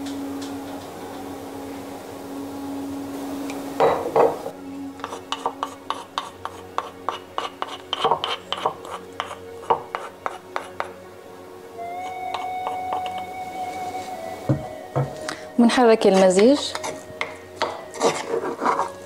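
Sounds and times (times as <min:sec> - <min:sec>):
metal spoon knocking in mortar: 0:05.0 - 0:10.9.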